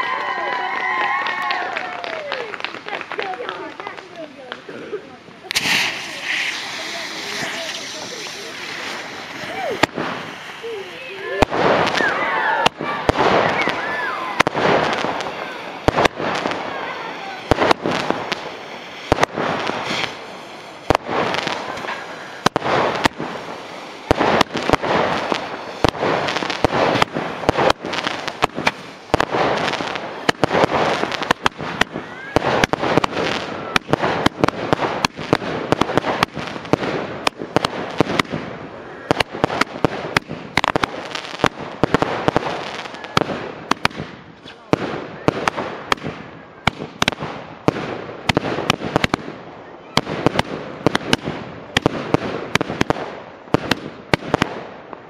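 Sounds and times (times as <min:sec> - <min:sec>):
fireworks cracking: 0:00.0 - 0:55.0
hiss of spraying sparks: 0:05.5 - 0:12.0, 0:15.2 - 0:31.9.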